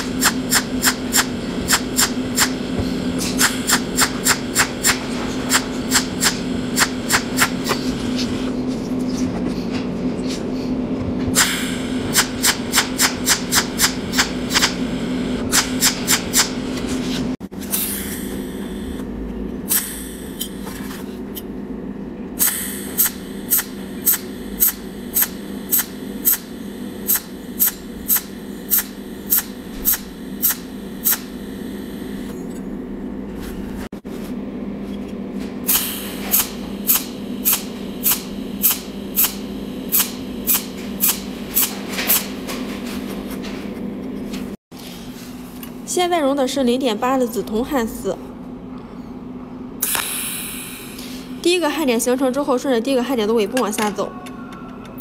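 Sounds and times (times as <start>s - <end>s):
welding arc snaps: 0.0s - 2.6s, 3.3s - 7.8s, 11.4s - 16.6s, 22.4s - 32.3s, 35.7s - 42.4s, 49.8s - 50.4s
low hum: 16.5s - 44.6s.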